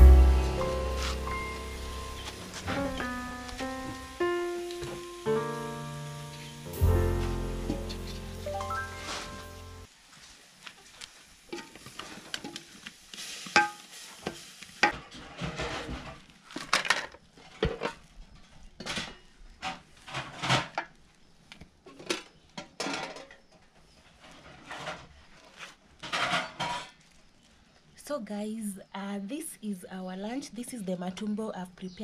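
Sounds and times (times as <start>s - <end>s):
background music: 0.0s - 9.9s.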